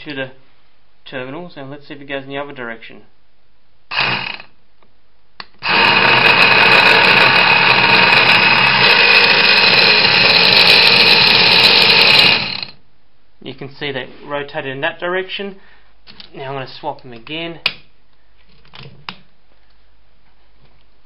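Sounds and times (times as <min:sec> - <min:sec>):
electric starter motor spinning: 0:03.9 - 0:04.5, 0:05.6 - 0:12.8.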